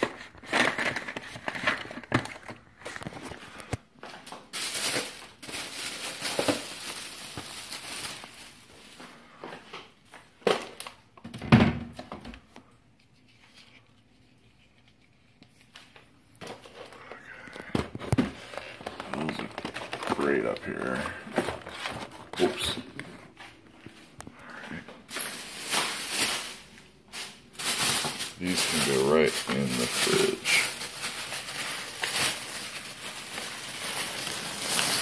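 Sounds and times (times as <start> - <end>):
packages and jars set down: 0.0 - 9.0, 17.6 - 23.5
plastic bags crinkling: 0.0 - 9.4, 15.7 - 35.0.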